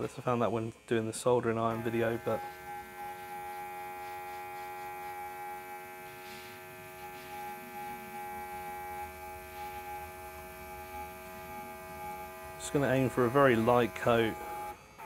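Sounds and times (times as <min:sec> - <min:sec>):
compressor electric hum: 0:00.0 - 0:15.0
air hissing from nozzle: 0:01.7 - 0:11.7.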